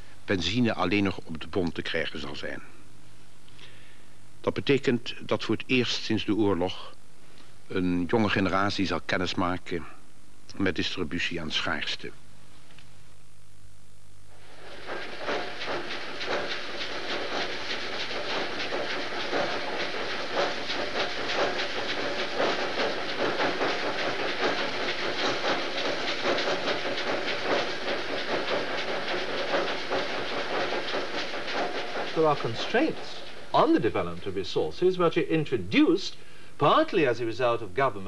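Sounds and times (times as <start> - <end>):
faint hum: 0.0 - 24.8, 31.5 - 38.0
machinery clattering and hissing: 14.3 - 37.2.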